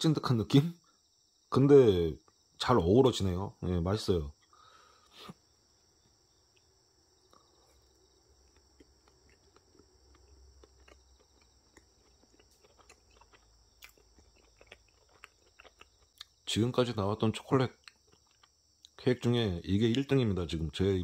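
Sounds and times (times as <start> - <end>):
faint high hiss: 0.0 - 8.6.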